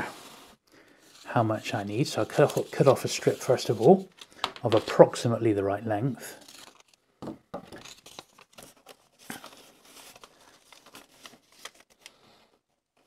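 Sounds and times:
paper tape rustling on cardboard: 0.0s - 5.2s, 6.3s - 7.0s, 7.7s - 12.2s.

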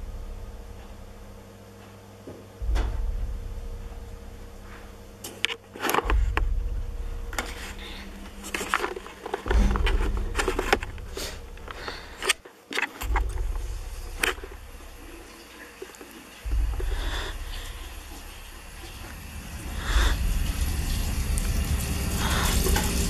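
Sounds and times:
deep rumbling booms: 2.6s - 5.2s, 6.0s - 12.3s, 13.0s - 23.0s
sharp clicks and knocks: 5.2s - 19.0s.

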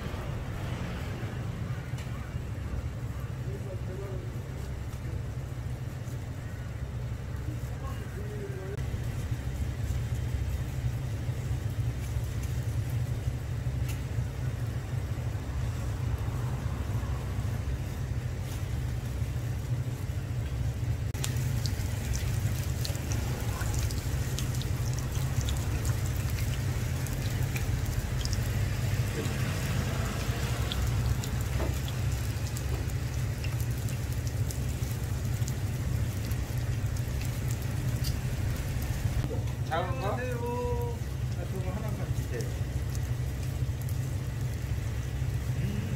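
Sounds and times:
steady low rumble: 0.0s - 45.9s
pancake sizzling in oil: 21.1s - 39.2s
oil pops and crackles: 21.2s - 39.7s, 42.0s - 45.6s.

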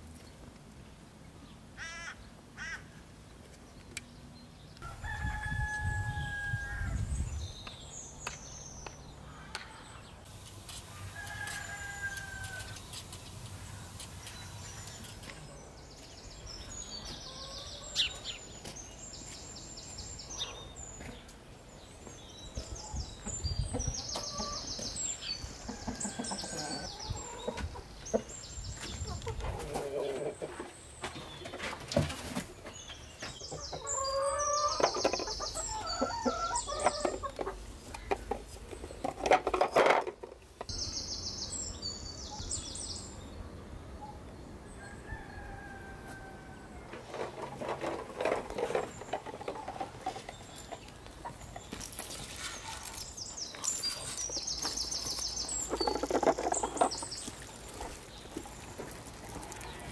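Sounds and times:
roosters crowing: 4.8s - 7.2s, 10.9s - 12.9s, 25.6s - 27.6s, 33.6s - 37.4s, 44.6s - 47.9s
small birds chirping: 7.0s - 39.8s, 40.5s - 45.7s, 48.2s - 59.9s
hens clucking: 23.2s - 28.3s, 28.9s - 32.4s, 33.5s - 40.7s, 46.8s - 51.6s, 54.0s - 59.9s.

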